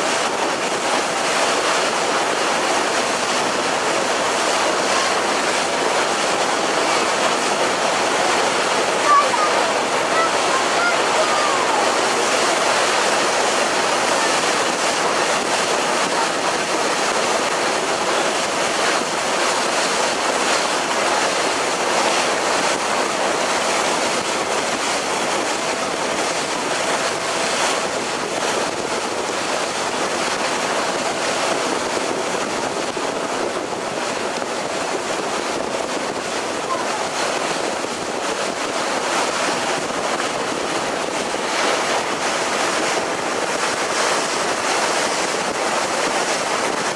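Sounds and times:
rush of water and wind: 0:00.0 - 0:46.9.

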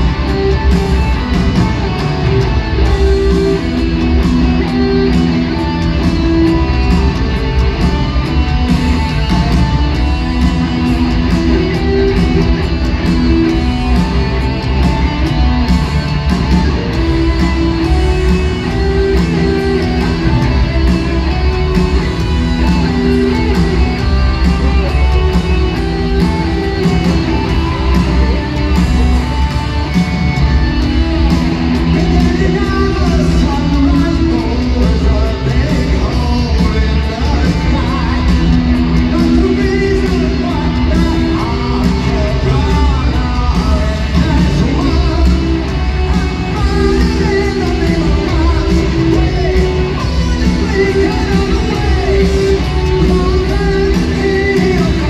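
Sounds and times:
bass guitar: 0:00.0 - 0:55.0
distorted electric guitars: 0:00.0 - 0:55.0
drums: 0:00.0 - 0:55.0
person singing: 0:16.6 - 0:55.0.

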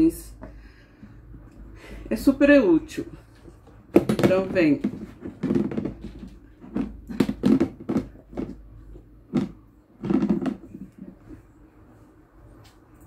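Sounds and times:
plastic containers knocking: 0:03.6 - 0:11.0.

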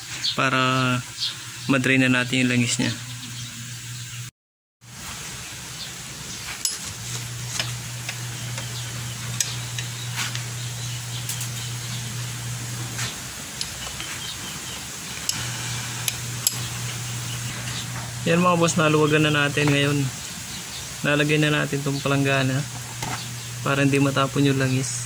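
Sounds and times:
steady low hum: 0:05.9 - 0:25.0.

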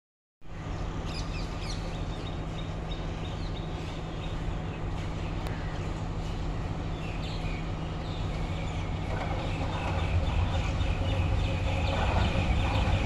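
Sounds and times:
diesel train drone: 0:00.4 - 0:13.0
birds chirping: 0:00.5 - 0:13.0.

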